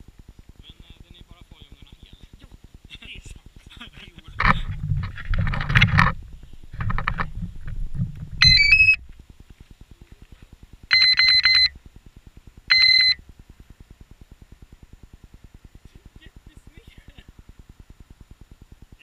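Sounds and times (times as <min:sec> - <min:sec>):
short electronic beeps: 0:08.4 - 0:09.0, 0:10.9 - 0:11.7, 0:12.7 - 0:13.2.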